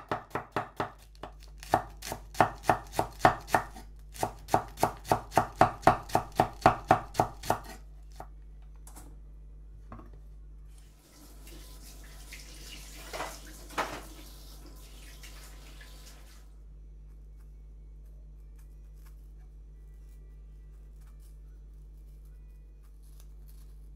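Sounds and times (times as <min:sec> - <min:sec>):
knife chopping cabbage on a board: 0:00.0 - 0:08.3.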